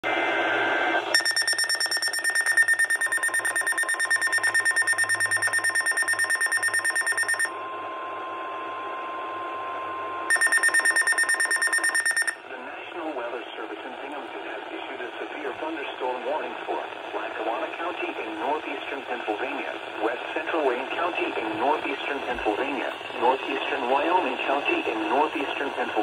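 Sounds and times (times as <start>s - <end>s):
steady warning tone: 0.6s - 26.0s
rapid shrill pulsing beep: 1.1s - 7.5s, 10.3s - 12.4s.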